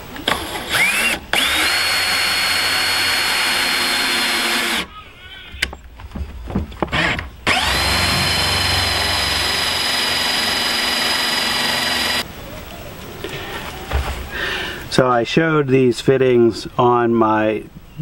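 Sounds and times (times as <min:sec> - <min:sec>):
cordless drill whining: 0:00.2 - 0:04.9, 0:06.9 - 0:12.2.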